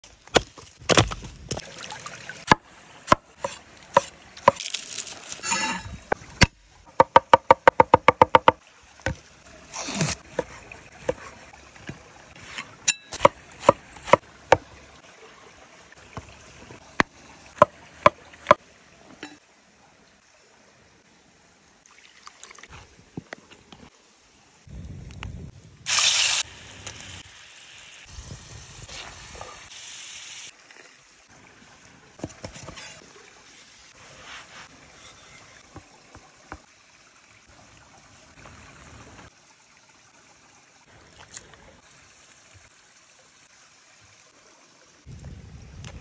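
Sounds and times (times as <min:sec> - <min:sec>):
cleaver chopping on wooden board: 0:06.4 - 0:08.6, 0:13.1 - 0:14.6
firewood knocking: 0:06.9 - 0:09.2.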